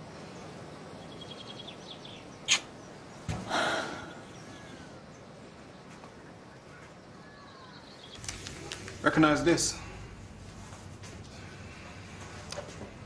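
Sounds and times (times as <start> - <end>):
small birds chirping: 0.0 - 10.2
outdoor background noise: 0.0 - 13.0
breathy rush of noise: 3.4 - 5.2, 8.2 - 13.0.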